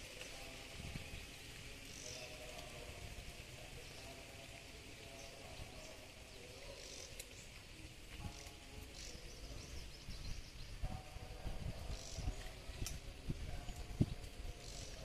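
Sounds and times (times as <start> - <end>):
faint bird chirps: 11.8 - 15.0.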